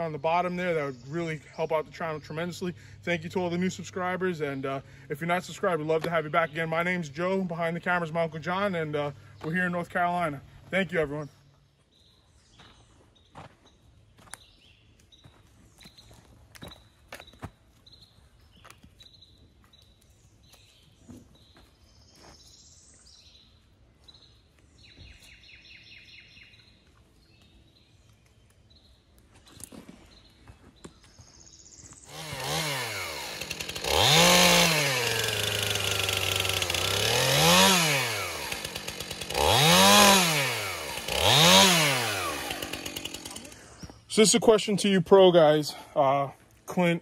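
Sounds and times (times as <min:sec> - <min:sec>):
chainsaw revving and cutting wood: 0:00.0 - 0:11.3, 0:31.9 - 0:47.0.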